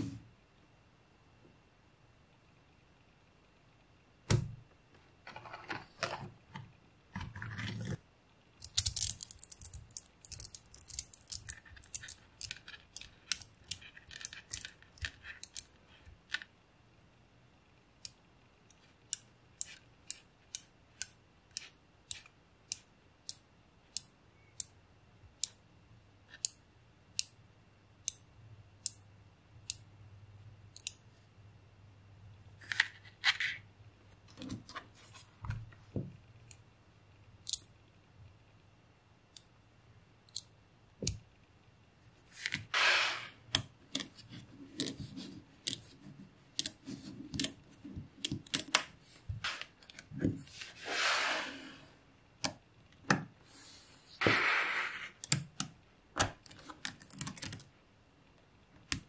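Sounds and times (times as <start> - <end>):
magnet balls clicking: 8.6 - 16.5.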